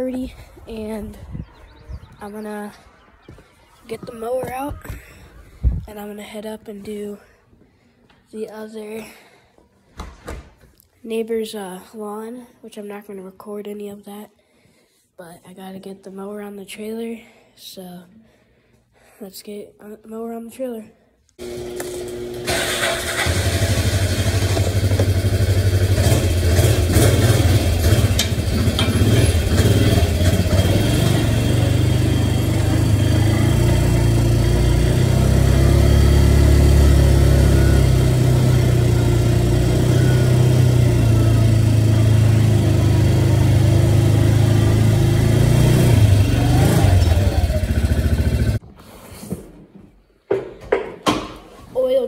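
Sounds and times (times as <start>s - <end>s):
small vehicle engine running: 21.4s - 48.6s.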